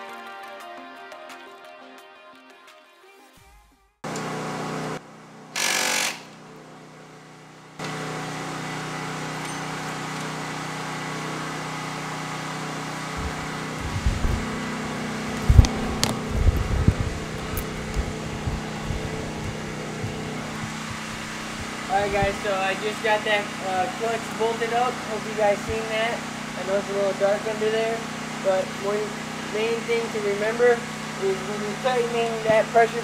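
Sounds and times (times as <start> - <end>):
shop fan hum: 4.0 - 33.0
impact wrench burst: 5.5 - 6.6.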